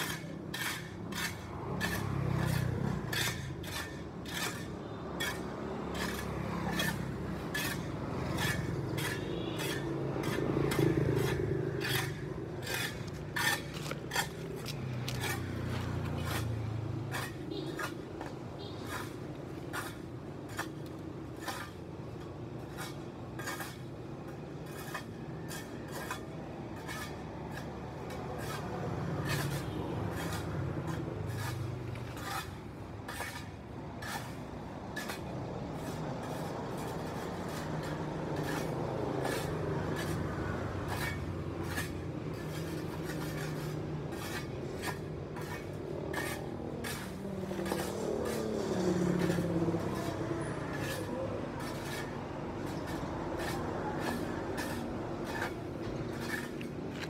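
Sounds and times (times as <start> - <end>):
hand tools scraping pavement: 0.0 - 57.0
road traffic: 0.0 - 57.0
vehicle passing close: 35.7 - 57.0.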